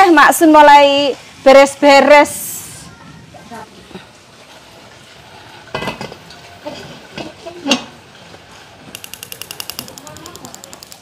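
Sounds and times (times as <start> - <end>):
pots and utensils clattering: 5.7 - 8.5
fast even ticking: 8.9 - 11.0.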